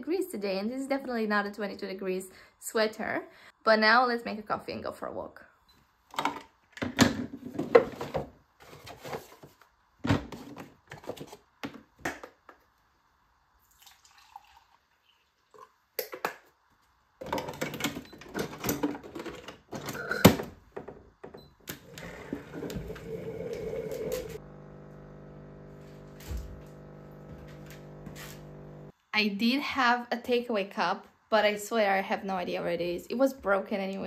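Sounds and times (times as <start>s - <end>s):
coffee machine pump humming: 21.8s - 28.9s.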